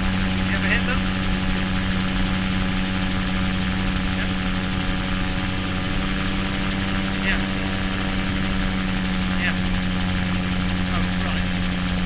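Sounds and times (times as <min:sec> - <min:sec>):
aircraft engine and propeller drone: 0:00.0 - 0:12.0.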